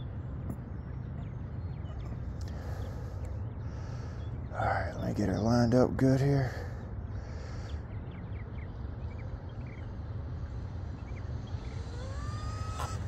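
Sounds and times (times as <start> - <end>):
steady low rumble: 0.0 - 13.0
rc boat motor whine: 11.0 - 13.0.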